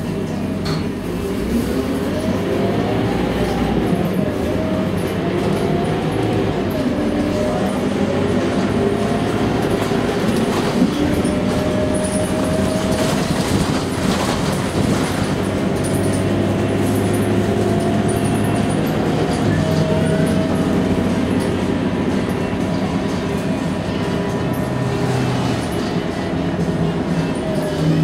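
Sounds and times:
bus diesel engine running: 0.0 - 28.0
bus body knocks and rattles: 8.6 - 24.0.

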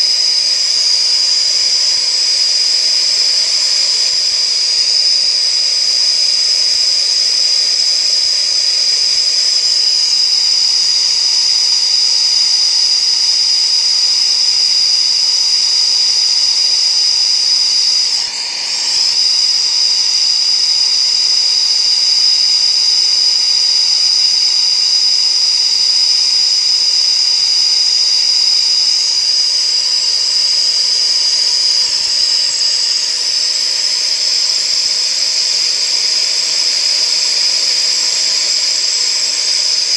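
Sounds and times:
torch flame hissing: 0.0 - 9.8, 16.7 - 24.1, 29.2 - 39.9.

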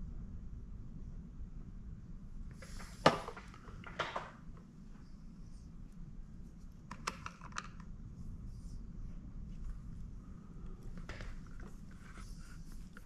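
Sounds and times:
rustling: 8.2 - 13.0.

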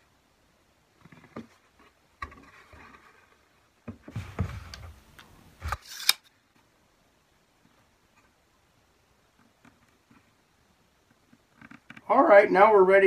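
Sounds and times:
wooden door sliding on bench: 4.0 - 4.9.

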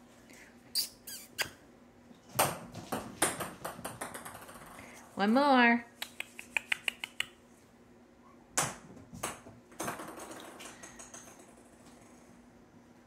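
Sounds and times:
ball knocks and ticks: 2.4 - 4.8, 8.6 - 12.1
ping pong ball bouncing on floor: 2.4 - 4.8, 8.6 - 12.0.

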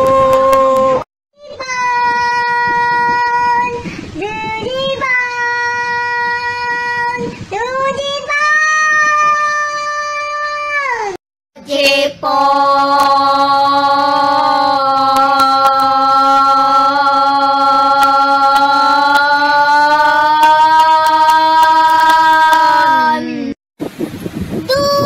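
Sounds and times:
person singing long notes: 0.0 - 1.0, 11.6 - 23.6.

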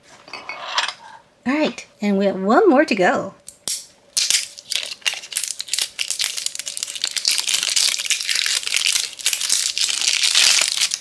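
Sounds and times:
plastic shrink wrap crinkling: 4.2 - 11.0.

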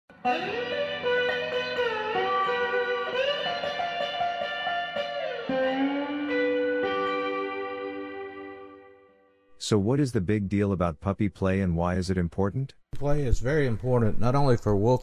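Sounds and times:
electric guitar melody with bends: 0.1 - 9.5.

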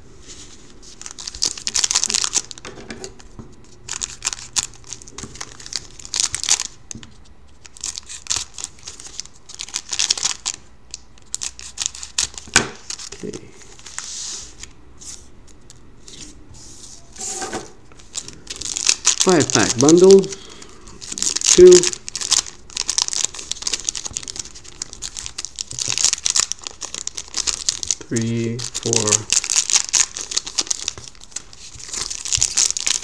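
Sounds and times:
foil wrappers crinkling and tearing: 0.4 - 2.7, 3.9 - 15.3, 17.9 - 33.0.

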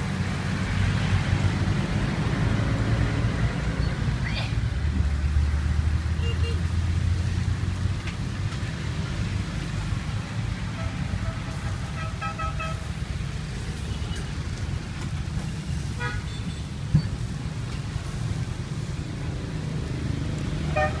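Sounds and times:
traffic rumble: 0.0 - 21.0
car horn toots: 10.8 - 12.8, 20.7 - 21.0.

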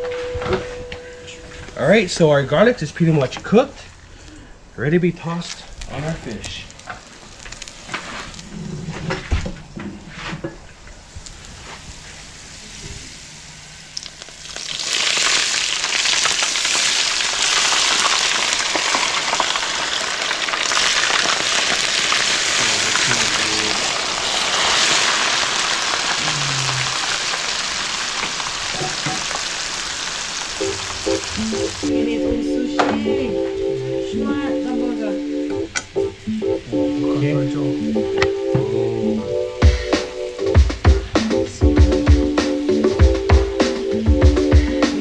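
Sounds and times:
garlic crackling in hot oil: 5.8 - 8.6, 13.9 - 31.5
loud oil sizzle: 5.8 - 8.6, 11.0 - 31.9.

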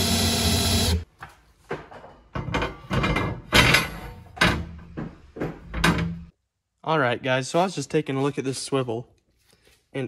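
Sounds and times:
cordless drill boring through steel: 0.0 - 1.0.

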